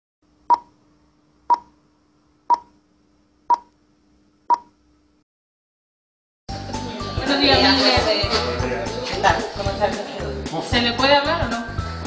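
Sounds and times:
short electronic beeps: 0:00.5 - 0:00.7, 0:02.5 - 0:02.7, 0:04.5 - 0:04.7.

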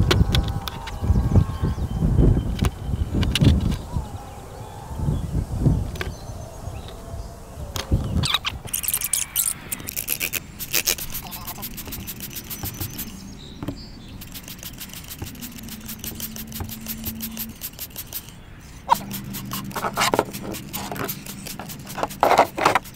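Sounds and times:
trigger spray bottle spraying: 0:08.7 - 0:13.2, 0:14.2 - 0:22.9.

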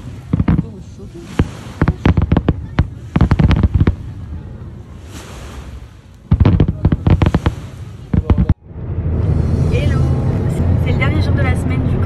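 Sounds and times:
fireworks hiss: 0:00.0 - 0:04.2, 0:04.8 - 0:08.6
fireworks bangs and crackles: 0:00.0 - 0:08.6.

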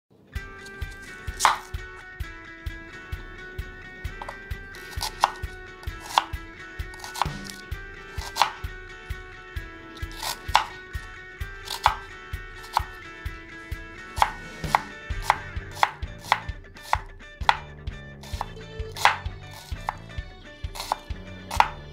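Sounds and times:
knife chopping on wooden board: 0:00.6 - 0:02.0, 0:04.2 - 0:08.7, 0:10.0 - 0:13.0, 0:14.1 - 0:20.1, 0:20.7 - 0:21.9.

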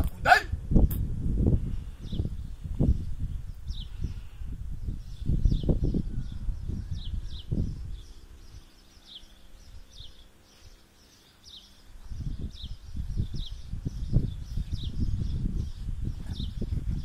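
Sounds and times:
wind buffeting microphone: 0:00.0 - 0:10.8, 0:11.5 - 0:17.0
bird chirping: 0:03.5 - 0:17.0.

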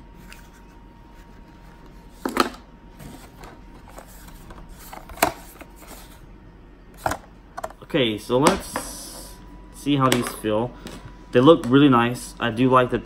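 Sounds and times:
plastic and cardboard rustling: 0:00.2 - 0:06.2.

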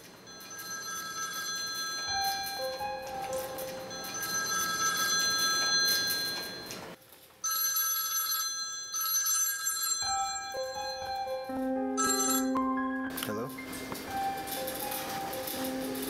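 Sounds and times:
mobile phone ringtone: 0:00.3 - 0:06.8, 0:07.4 - 0:12.9.

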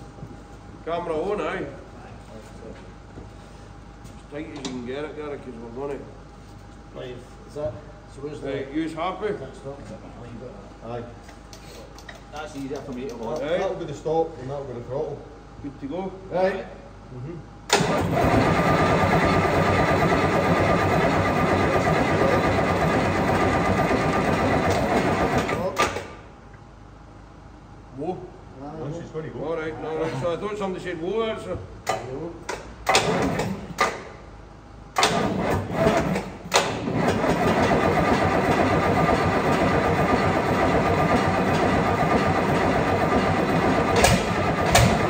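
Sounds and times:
diesel engine running: 0:17.8 - 0:25.6, 0:36.8 - 0:45.0.

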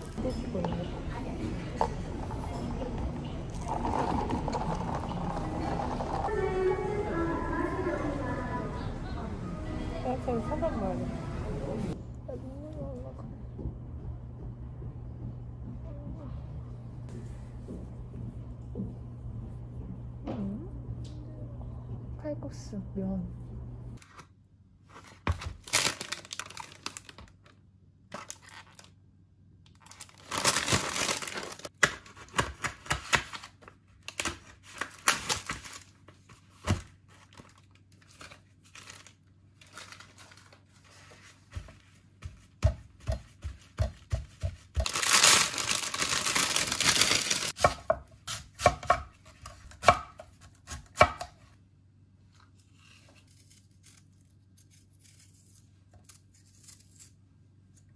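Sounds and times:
plastic film and paper rustling: 0:24.9 - 0:28.9, 0:29.8 - 0:42.0, 0:44.8 - 0:47.6.

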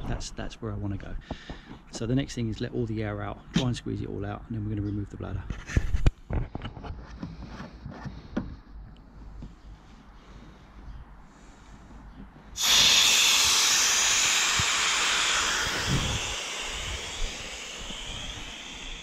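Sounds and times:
air hissing out of valve: 0:12.6 - 0:19.0.

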